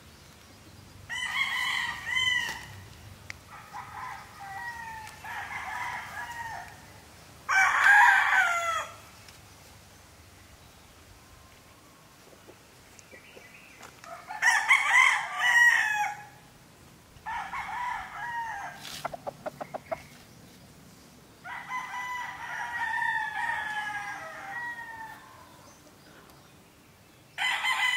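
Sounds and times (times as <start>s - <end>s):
rooster crowing: 1.1s - 2.8s, 3.5s - 6.9s, 7.5s - 9.0s, 14.1s - 16.4s, 17.2s - 18.9s, 21.4s - 25.5s, 27.4s - 27.9s.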